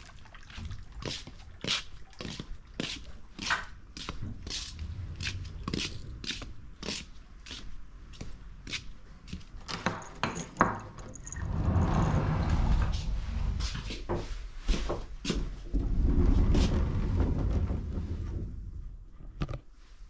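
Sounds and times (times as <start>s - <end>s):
footsteps: 2.3s - 9.6s, 11.1s - 15.8s
sliding doors rumbling on tracks: 4.3s - 6.9s, 11.3s - 14.3s, 15.7s - 19.0s.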